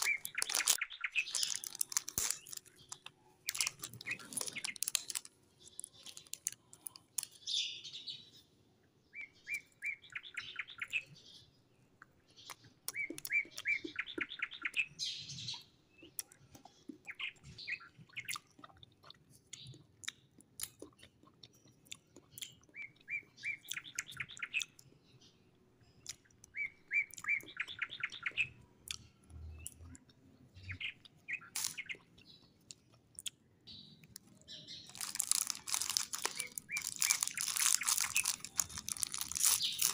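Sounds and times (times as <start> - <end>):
hard candies crunching: 0.0 - 7.5, 31.4 - 39.9.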